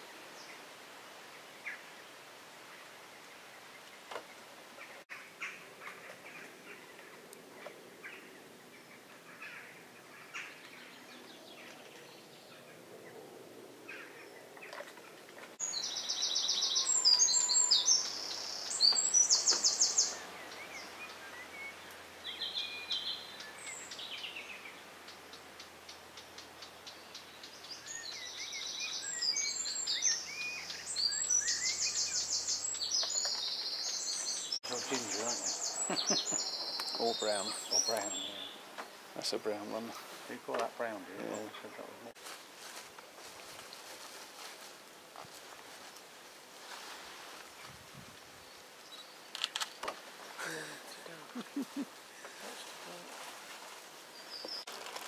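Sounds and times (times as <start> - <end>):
songbirds trilling: 1.3 - 42.2, 47.5 - 55.0
faint bird chirps: 15.6 - 38.6.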